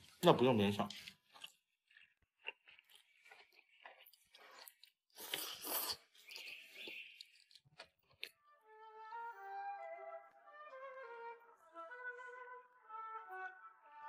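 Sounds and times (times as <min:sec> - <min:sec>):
soft chewing: 0:00.0 - 0:08.4
slurping and sucking: 0:02.5 - 0:07.4.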